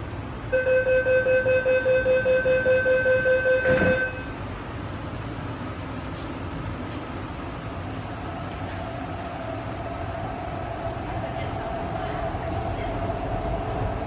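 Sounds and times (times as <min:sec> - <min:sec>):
train hum: 0:00.0 - 0:14.0
rapid pulsing door warning beeps: 0:00.5 - 0:04.3
train doors shutting thud: 0:03.5 - 0:04.4.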